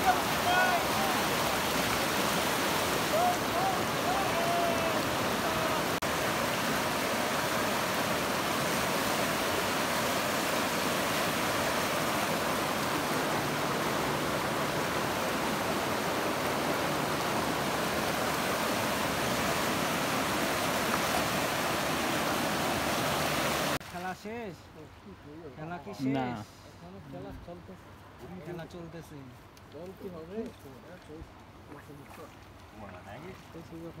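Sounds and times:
whitewater rushing: 0.0 - 23.8.

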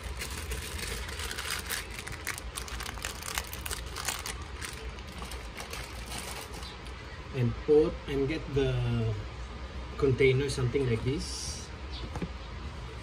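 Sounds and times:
crinkly clicks and rustles: 0.0 - 7.0
low steady hum: 0.0 - 13.0.

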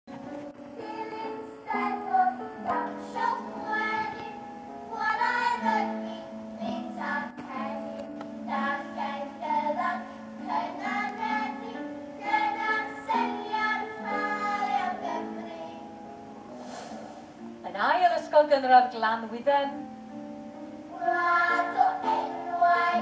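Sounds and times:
girls singing in harmony: 0.6 - 16.1, 20.8 - 23.0.

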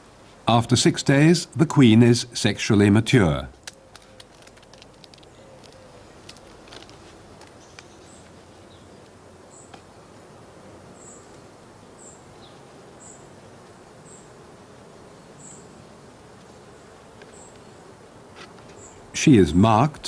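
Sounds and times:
honeybees buzzing: 3.2 - 20.0
hive box clicks: 3.6 - 8.3.

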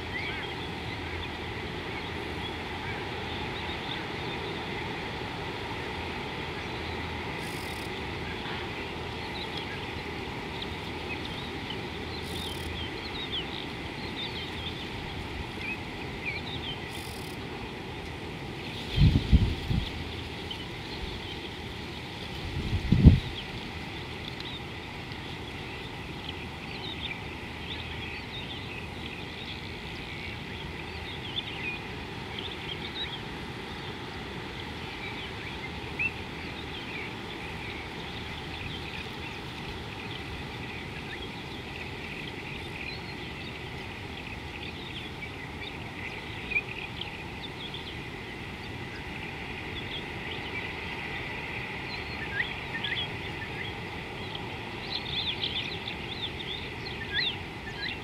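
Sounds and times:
small birds chirping: 6.6 - 17.6.

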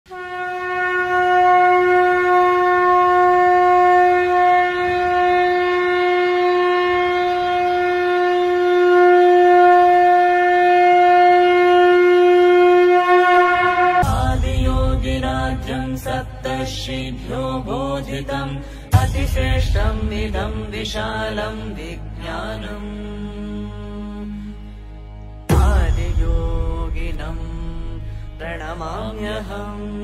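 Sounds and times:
conch shell blast: 0.1 - 15.8.

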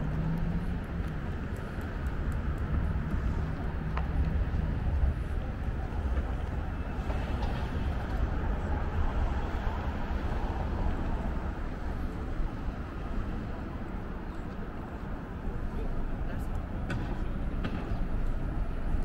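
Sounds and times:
traffic low rumble: 0.0 - 19.0.

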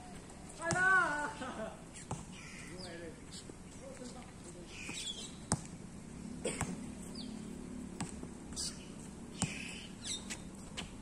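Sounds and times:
birds chirping: 1.9 - 7.6, 8.5 - 11.0
basketball bouncing on court: 5.5 - 5.7.

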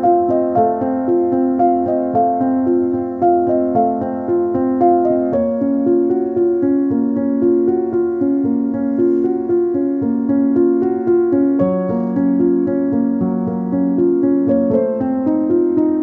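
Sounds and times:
keyboard music: 0.0 - 16.0.

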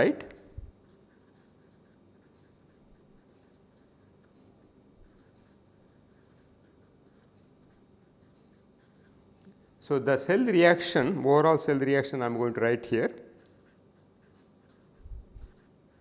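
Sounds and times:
marker pen scratching on paper: 0.2 - 4.4, 5.0 - 9.2, 13.4 - 16.0.

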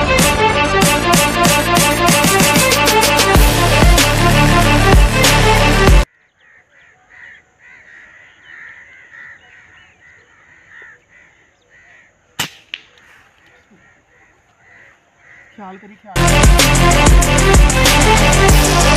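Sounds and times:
birds calling: 6.0 - 16.4
air rifle cracks: 12.4 - 13.2.

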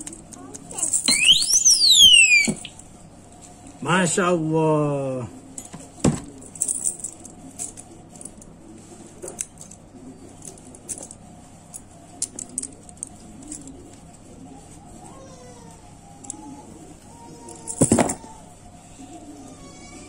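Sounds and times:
padlock alarm siren: 1.0 - 2.7.

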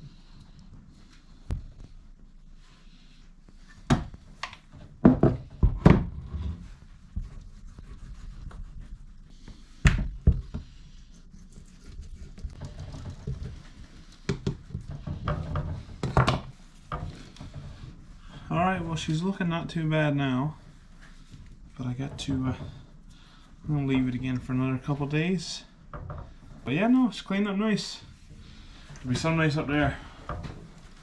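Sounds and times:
sharp knocks and thunks: 5.0 - 6.5.

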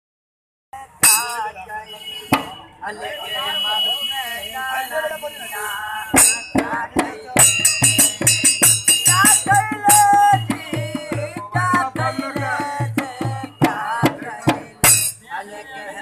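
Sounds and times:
man singing: 0.8 - 16.0
barrel drum beating: 2.3 - 2.6, 6.2 - 15.2
small hand cymbals clashing: 7.5 - 9.5.

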